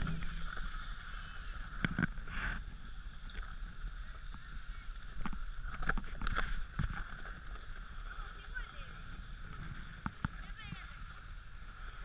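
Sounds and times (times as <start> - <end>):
skis scraping on snow: 0.0 - 2.9.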